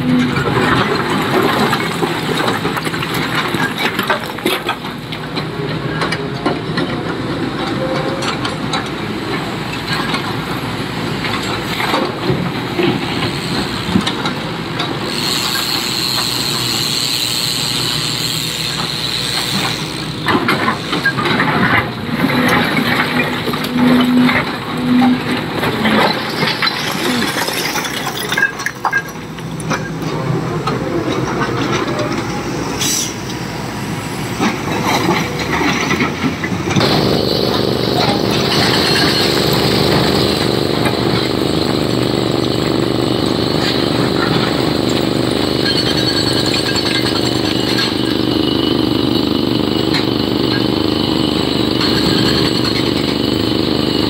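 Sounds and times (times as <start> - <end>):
diesel engine drone: 0.0 - 54.0
machinery knocks and clanks: 34.3 - 49.2.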